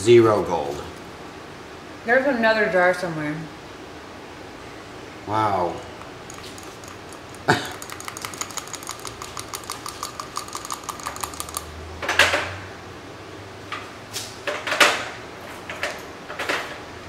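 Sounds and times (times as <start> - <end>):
stick tapping inside a jar: 5.9 - 11.8.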